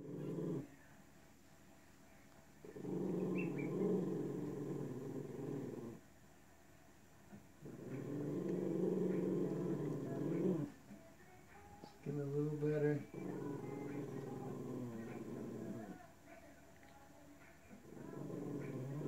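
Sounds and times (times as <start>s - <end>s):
dog growling low: 0.0s - 0.8s, 2.6s - 6.0s, 7.6s - 10.8s, 12.5s - 16.0s, 17.7s - 19.0s.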